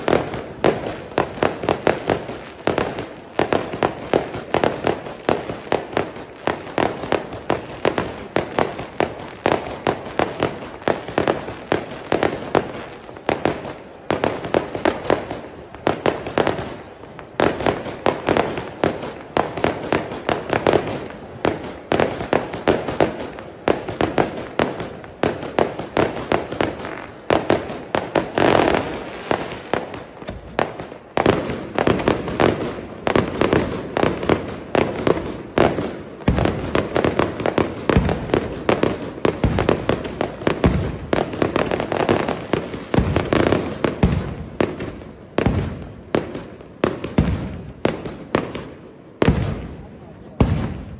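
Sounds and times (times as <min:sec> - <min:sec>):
firework bursts and reports: 0:00.0 - 0:50.9
firework crackling: 0:00.0 - 0:50.9
deep firework booms: 0:49.2 - 0:50.9.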